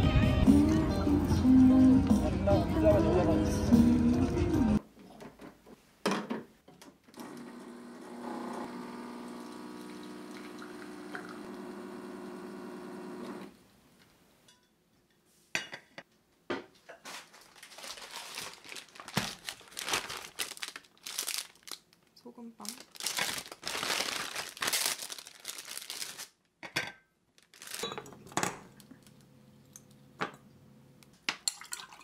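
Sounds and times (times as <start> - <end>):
espresso machine pump humming: 7.3 - 13.5
paper bag crinkling: 17.0 - 26.5, 27.4 - 28.0.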